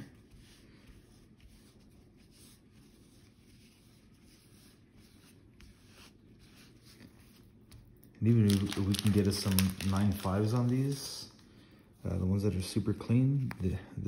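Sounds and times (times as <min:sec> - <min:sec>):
soft rubbing swishes: 0:00.0 - 0:07.9.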